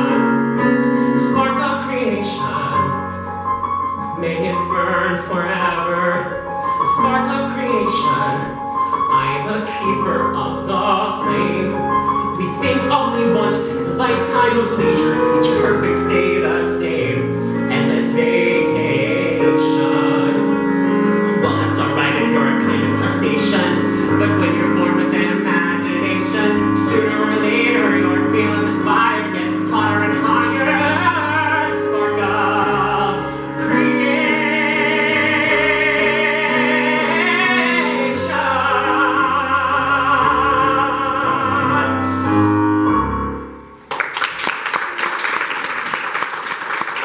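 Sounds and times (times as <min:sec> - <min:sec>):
man singing a ballad: 0:00.0 - 0:03.3, 0:03.9 - 0:42.6
audience applause: 0:43.9 - 0:47.0.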